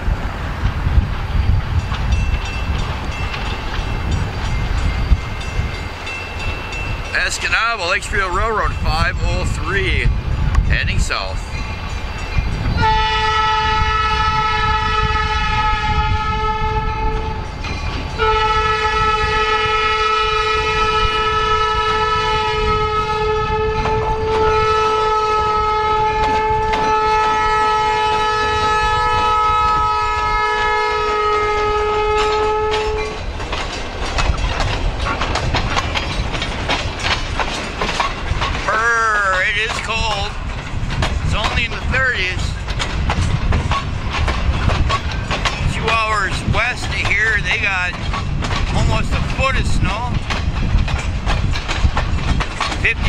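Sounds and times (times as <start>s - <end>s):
locomotive rumble: 0.0s - 53.0s
train wheels clickety-clack: 0.0s - 53.0s
locomotive air horn blasts: 12.8s - 17.5s, 18.2s - 33.2s.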